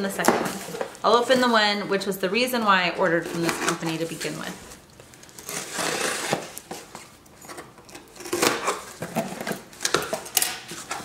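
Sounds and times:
cardboard rustling: 0:00.2 - 0:01.7, 0:02.9 - 0:11.0
cardboard box scraping: 0:05.4 - 0:06.5.

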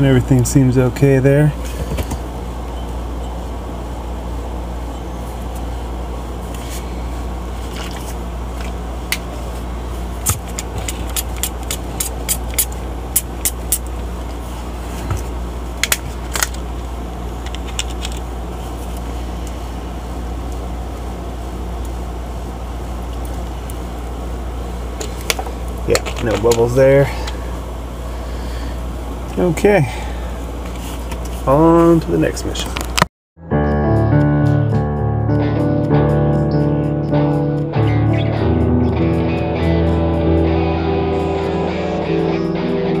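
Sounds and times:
refrigerator compressor humming: 0:00.0 - 0:33.0.

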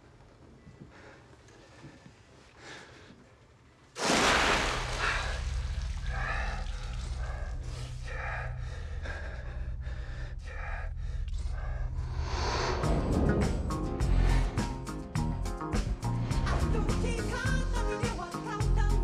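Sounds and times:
water splash: 0:04.0 - 0:07.0
low steady drone: 0:05.0 - 0:17.0.

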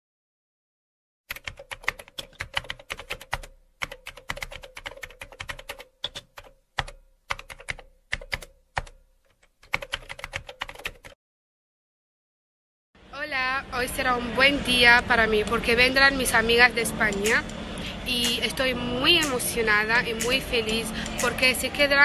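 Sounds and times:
rapid keyboard typing: 0:01.3 - 0:11.2.

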